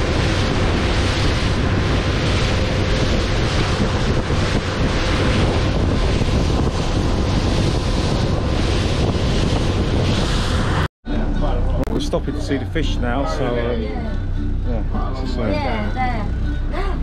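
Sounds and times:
wind buffeting microphone: 0.0 - 10.9
faint boat engine hum: 11.1 - 17.0.

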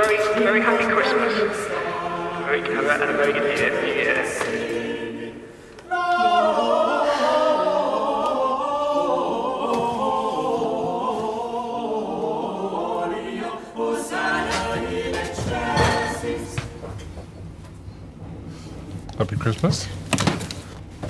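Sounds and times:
choir singing: 0.0 - 18.5.

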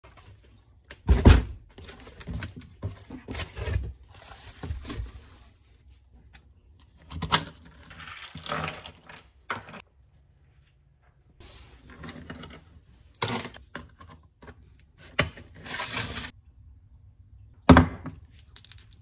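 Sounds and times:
packaging rustling and crinkling: 1.8 - 5.6.

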